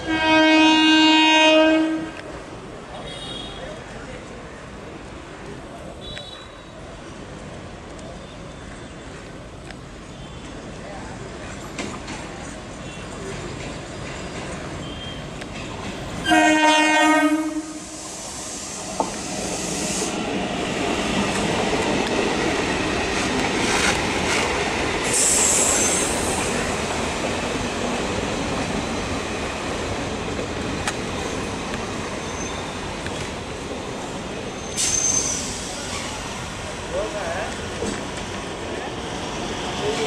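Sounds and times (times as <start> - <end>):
train horn: 0.0 - 2.2, 16.2 - 18.0
train coaches rumbling past: 0.0 - 40.0.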